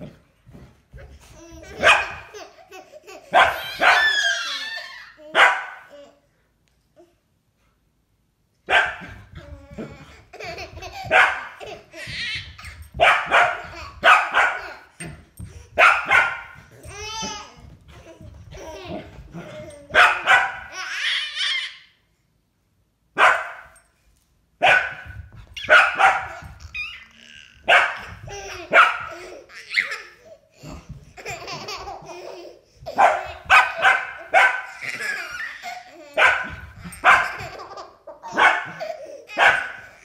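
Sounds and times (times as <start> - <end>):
babies laughing and squealing: 0.9 - 6.2, 9.2 - 13.0, 16.4 - 22.0, 25.4 - 40.0
dog barking: 1.8 - 2.2, 3.3 - 4.2, 5.4 - 5.9, 8.7 - 9.1, 11.1 - 11.5, 13.0 - 14.6, 15.8 - 16.6, 20.0 - 20.7, 23.2 - 23.8, 24.6 - 26.3, 27.7 - 28.0, 28.7 - 29.1, 33.0 - 34.7, 36.2 - 37.4, 38.3 - 38.8, 39.4 - 39.8.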